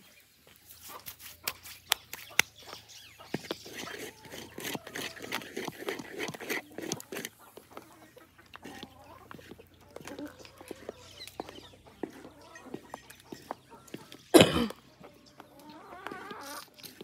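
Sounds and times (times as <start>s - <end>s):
stirring thin porridge: 3.3s - 14.3s.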